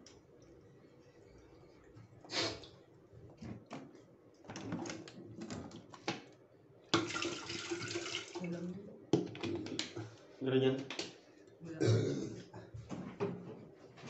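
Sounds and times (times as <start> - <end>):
water pouring: 6.9 - 8.6.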